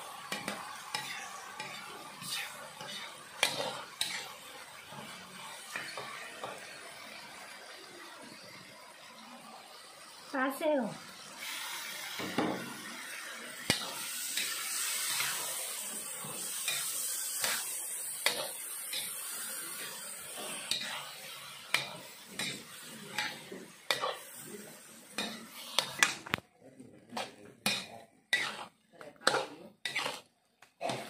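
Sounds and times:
oil sizzling: 0.0 - 31.0
spatula scraping and knocking pan: 0.3 - 6.7, 13.6 - 15.4, 16.1 - 24.4, 25.2 - 26.3, 27.2 - 31.0.

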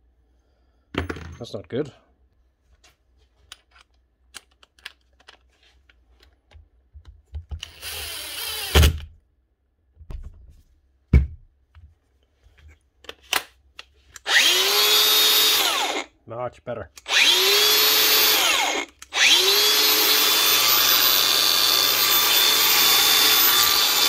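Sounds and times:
angle grinder motor running: 14.3 - 16.1, 17.1 - 24.0.

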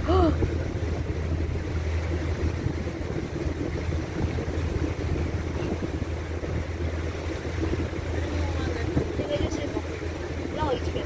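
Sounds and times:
motorboat engine humming: 0.0 - 11.0
water noise: 0.0 - 11.0
wind noise: 0.0 - 11.0.

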